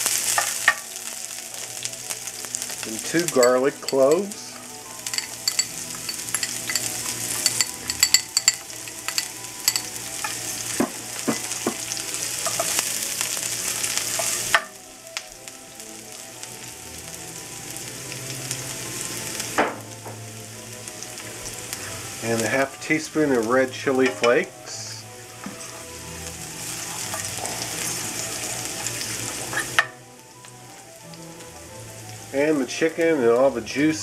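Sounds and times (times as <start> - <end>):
garlic sizzling in hot oil: 0.0 - 34.0
metal utensil clicking against pan: 3.2 - 4.3, 5.1 - 10.4.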